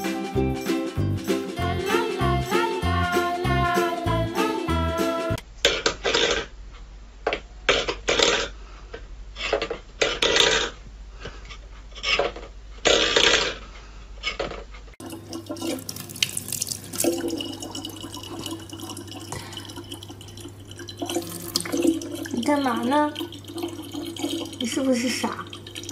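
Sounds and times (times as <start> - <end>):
tap water running into bottle: 15.0 - 25.9.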